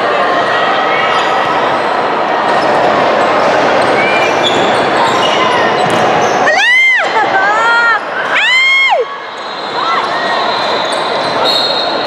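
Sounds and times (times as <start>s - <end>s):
murmur of voices: 0.0s - 12.0s
sneakers squeaking: 1.0s - 1.9s, 2.5s - 6.7s, 9.2s - 12.0s.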